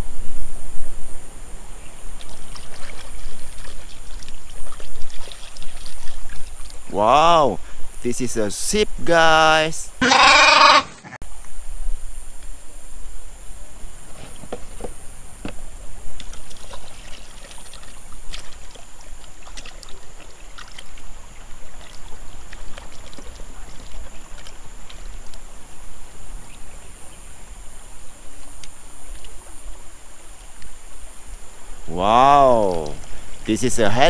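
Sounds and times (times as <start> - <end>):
flowing water hiss: 0.0 - 34.0
water splashing: 1.5 - 8.4, 14.1 - 34.0.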